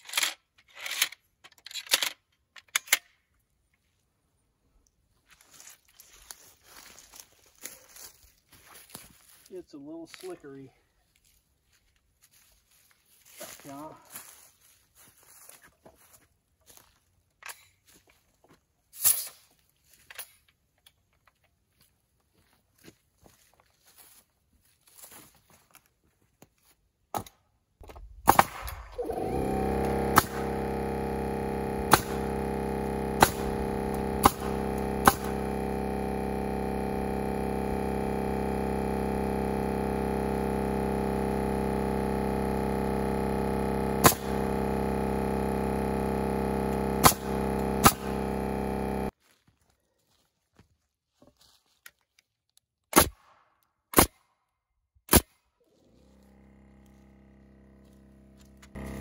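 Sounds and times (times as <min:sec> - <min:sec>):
air compressor running: 0:27.8 - 0:49.2, 0:55.6 - 0:59.0
nail gun shots: 0:28.2 - 0:29.2, 0:31.9 - 0:32.2, 0:33.2 - 0:33.6, 0:34.2 - 0:35.3, 0:44.0 - 0:44.4, 0:47.0 - 0:48.1, 0:52.9 - 0:53.2, 0:53.9 - 0:54.2, 0:55.1 - 0:55.3.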